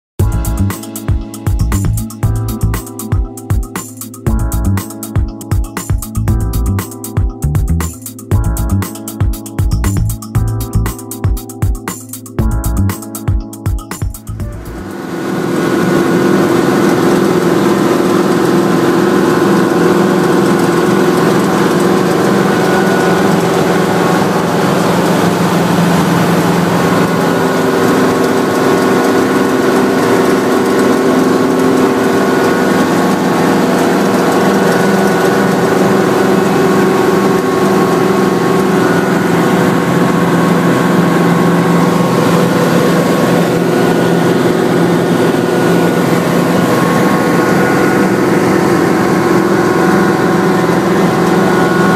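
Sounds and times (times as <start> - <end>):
helicopter engine and rotors drone: 14.4 - 51.9.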